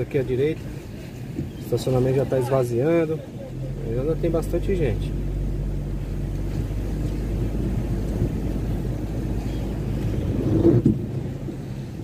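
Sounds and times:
car engine and tyres on wet road: 0:00.0 - 0:12.0.

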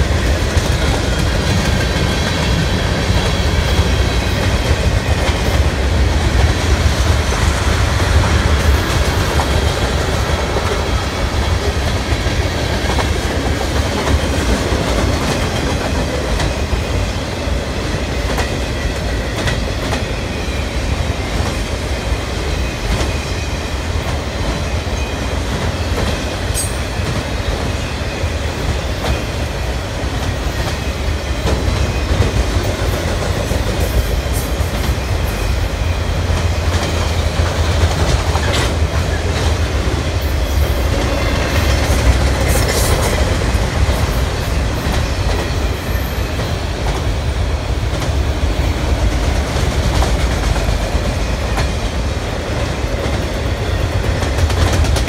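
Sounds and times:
freight train rumbling past: 0:00.0 - 0:55.0
wheels clicking over rail joints: 0:52.5 - 0:55.0.

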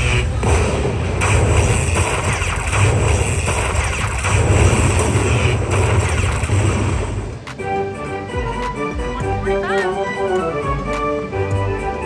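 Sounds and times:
slot machine win electronic rush: 0:01.2 - 0:07.2.

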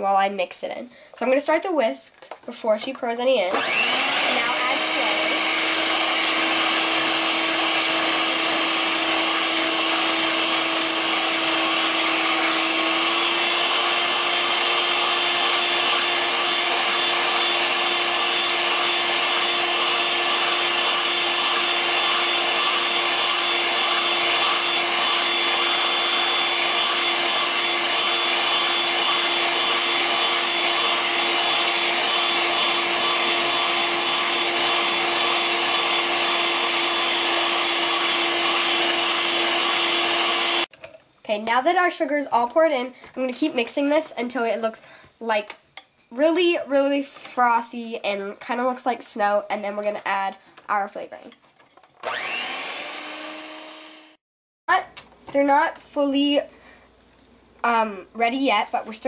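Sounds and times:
electric hand mixer whining: 0:03.5 - 0:40.7, 0:52.0 - 0:54.2.

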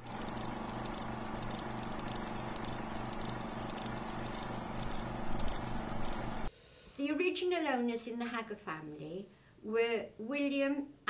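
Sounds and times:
mechanical whir with pulsing hum: 0:00.0 - 0:06.5.

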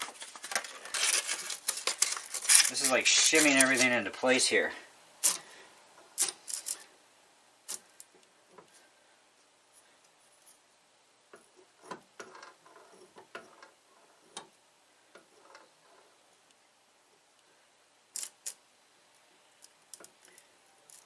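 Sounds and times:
metal and wood parts clicking: 0:05.2 - 0:06.9, 0:19.6 - 0:21.0.

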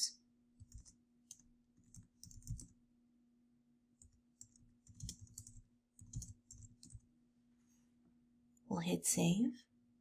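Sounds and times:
computer keyboard typing: 0:00.6 - 0:02.8, 0:04.0 - 0:07.1.

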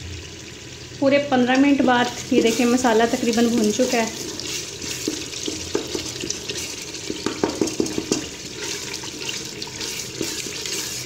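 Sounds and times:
masala sizzling in oil: 0:00.0 - 0:11.0
wooden spoon scraping a pot: 0:02.4 - 0:11.0.

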